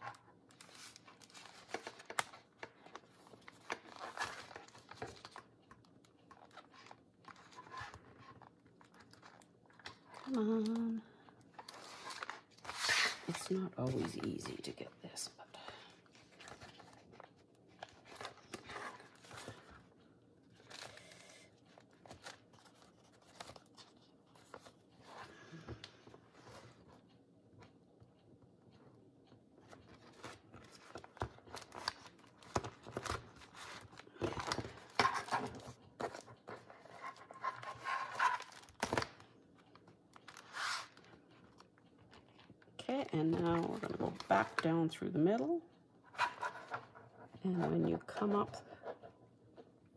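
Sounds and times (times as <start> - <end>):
paper rustling and scraping: 11.6 - 14.5, 40.3 - 41.1.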